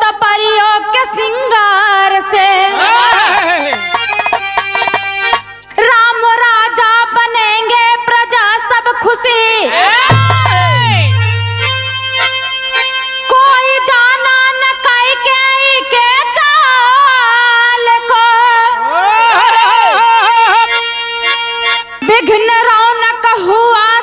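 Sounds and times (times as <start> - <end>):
harmonium holding notes: 0.0 - 7.4, 10.1 - 18.9, 19.7 - 24.0
hand drum strokes: 3.1 - 5.5, 10.1 - 12.2.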